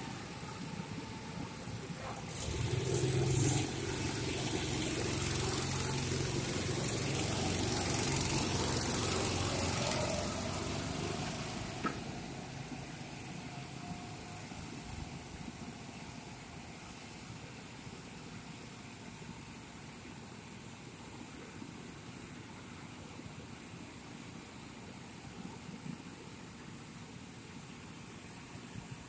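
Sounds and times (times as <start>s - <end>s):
go-kart engines running: 0.0s - 15.8s.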